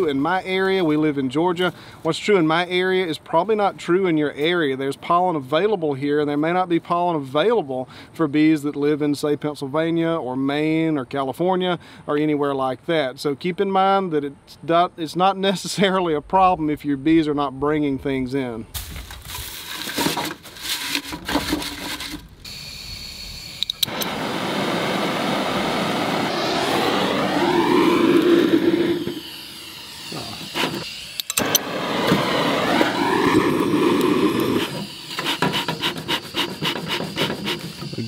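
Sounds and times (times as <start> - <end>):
pine needles rustling: 18.8 - 22.3
gas torch hissing: 22.4 - 38.0.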